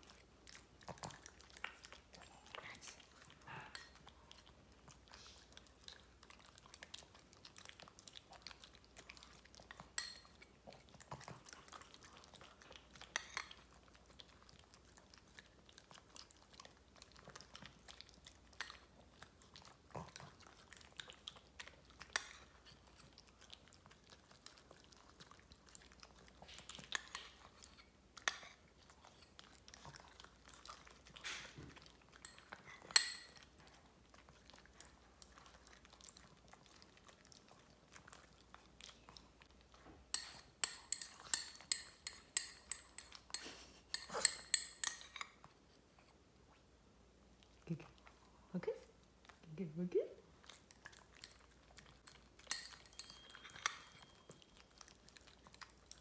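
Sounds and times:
dogs licking and chewing: 0:00.0 - 0:56.0
spoon clinking against bowl: 0:10.0 - 0:10.3, 0:32.2 - 0:33.4, 0:40.2 - 0:45.2, 0:52.4 - 0:54.6.

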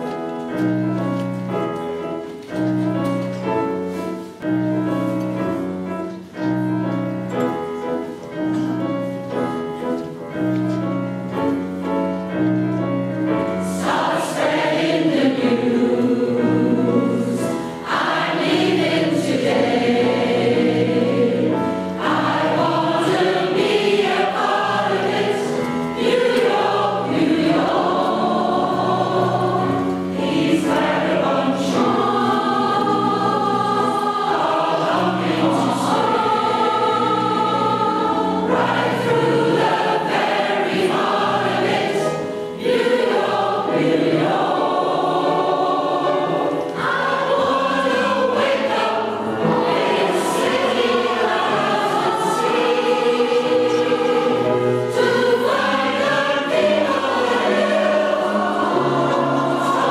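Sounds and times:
grand piano playing: 0:00.0 - 0:59.9
choir of women singing: 0:13.3 - 0:59.9.

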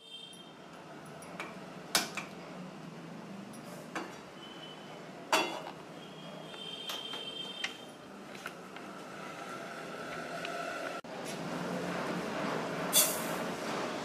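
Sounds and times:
gas burner hissing: 0:11.8 - 0:14.0.

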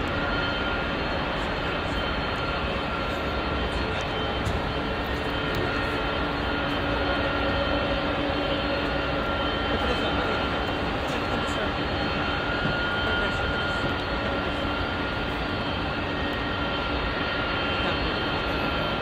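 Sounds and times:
jet engines at takeoff: 0:00.0 - 0:19.0.

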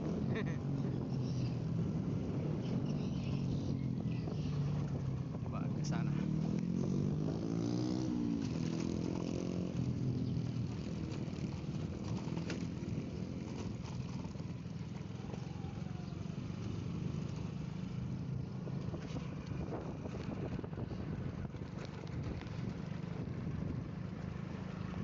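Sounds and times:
wind noise on microphone: 0:00.0 - 0:05.6, 0:18.6 - 0:23.9
motorcycle engine running: 0:00.0 - 0:25.0.

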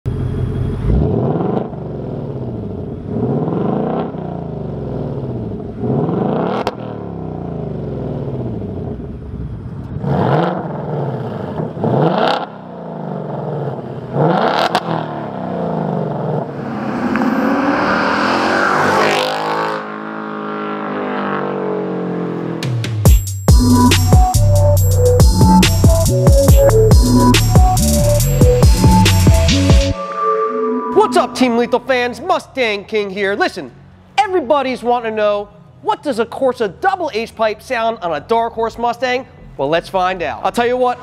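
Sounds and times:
car engine revving: 0:10.0 - 0:22.8.

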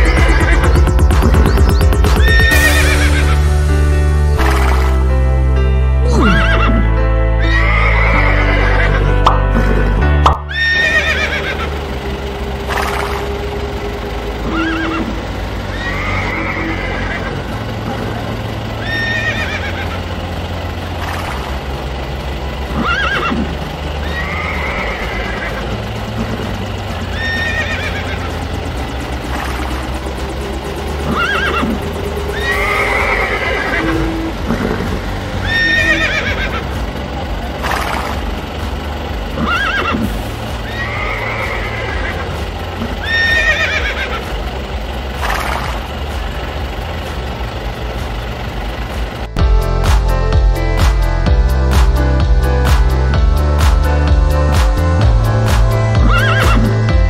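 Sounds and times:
horse neighing: 0:02.2 - 0:03.4, 0:06.1 - 0:09.1, 0:10.5 - 0:11.7, 0:15.7 - 0:17.4, 0:18.8 - 0:19.9, 0:22.8 - 0:23.4, 0:24.0 - 0:25.7, 0:27.2 - 0:28.3, 0:31.0 - 0:36.6, 0:39.4 - 0:42.3, 0:42.9 - 0:44.2, 0:56.0 - 0:56.7.

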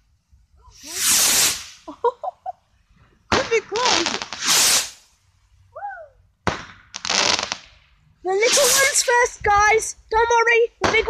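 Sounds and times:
firework crackling and hissing: 0:00.0 - 0:02.3, 0:03.2 - 0:05.6, 0:06.4 - 0:11.0
firework bangs: 0:00.7 - 0:02.0, 0:03.3 - 0:05.1, 0:06.4 - 0:09.4, 0:10.8 - 0:11.0.

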